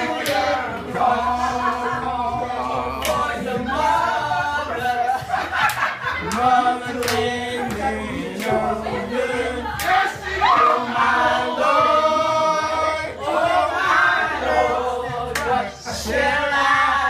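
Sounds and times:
women singing gospel: 0.0 - 17.0
hand claps: 0.2 - 0.5, 3.0 - 3.3, 5.6 - 8.6.

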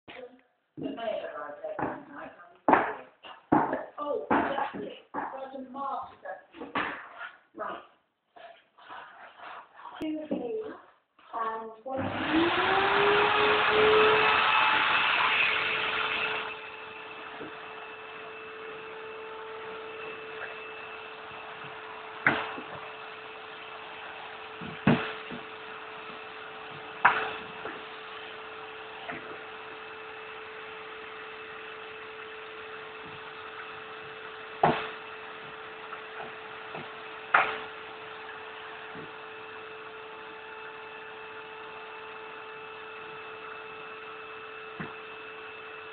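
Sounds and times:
dust extractor humming: 11.9 - 45.9.

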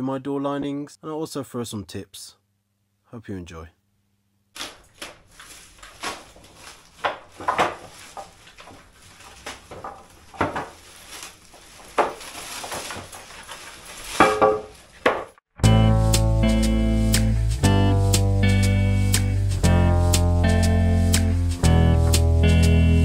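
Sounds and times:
timber knocking and scraping: 4.6 - 15.4
wood clattering: 4.6 - 15.4.

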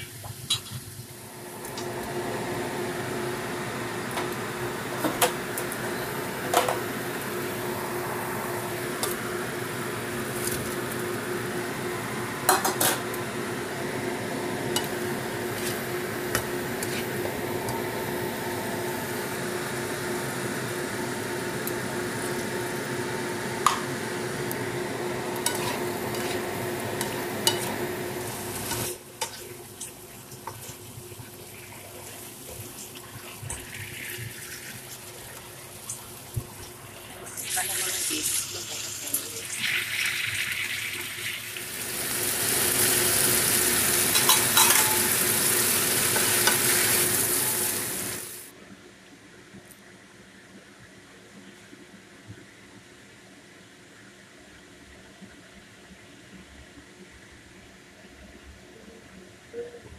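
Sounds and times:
food sizzling in a wok: 0.0 - 48.5
steady hum: 1.2 - 29.2
spatula stirring and scraping: 14.8 - 17.8, 25.4 - 30.9.

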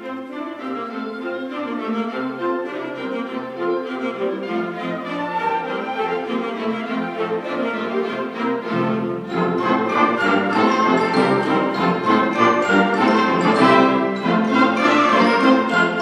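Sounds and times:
concert band playing: 9.3 - 16.0.

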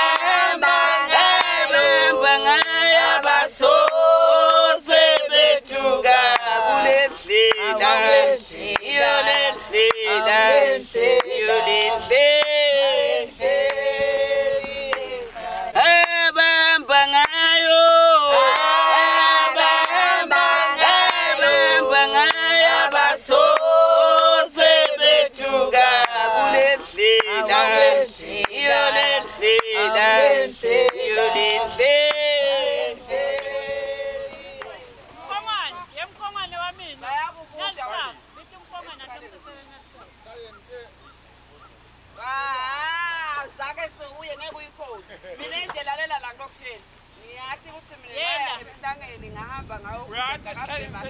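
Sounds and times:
choir singing: 0.0 - 35.2.

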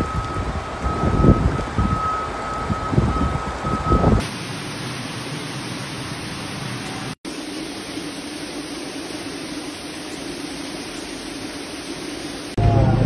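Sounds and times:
high electronic beep: 0.0 - 4.2
wind gusting on microphone: 0.0 - 4.3
floodwater cascading down stairs: 0.0 - 12.6.

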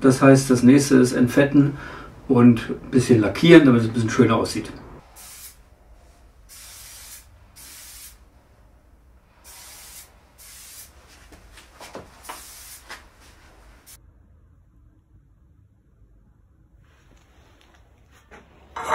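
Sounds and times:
aerosol spray can hissing: 5.1 - 5.7, 6.5 - 8.3, 9.4 - 14.0.

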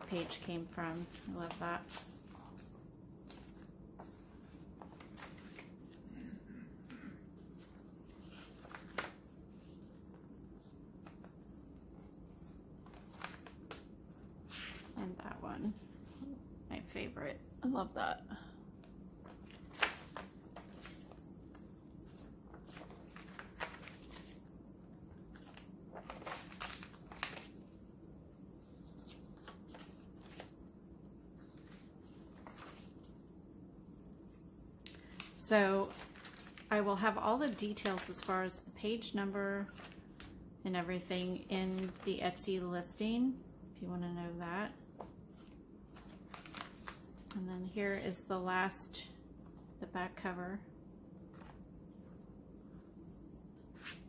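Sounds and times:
faint paper rustles and flicks: 0.0 - 6.2, 6.8 - 15.0, 19.2 - 33.3, 33.9 - 40.4, 41.1 - 42.5, 44.8 - 48.1, 51.2 - 54.0
paper pages being turned: 0.1 - 6.0, 7.4 - 15.0, 19.2 - 33.3, 34.2 - 38.4, 39.6 - 40.4, 41.6 - 42.4, 45.0 - 48.0, 51.3 - 51.6, 53.2 - 54.0.

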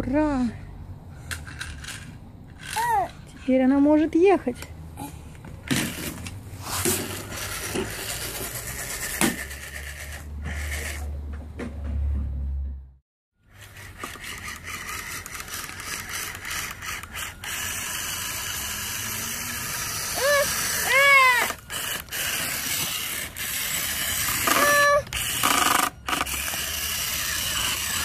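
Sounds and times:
toy truck electric motor whining: 1.3 - 3.3, 5.7 - 11.2, 13.4 - 28.0
mechanical rattle: 13.5 - 19.0
high-pitched vocal sounds: 20.2 - 21.6, 24.5 - 25.1.

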